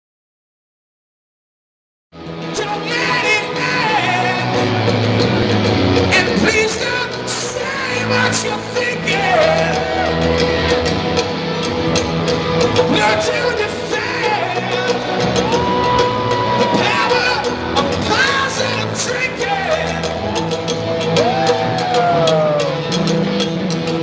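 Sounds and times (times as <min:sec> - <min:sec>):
drums: 0:02.2 - 0:24.0
electric guitars: 0:02.2 - 0:24.0
man singing: 0:02.4 - 0:05.0, 0:06.0 - 0:10.4, 0:12.8 - 0:20.4.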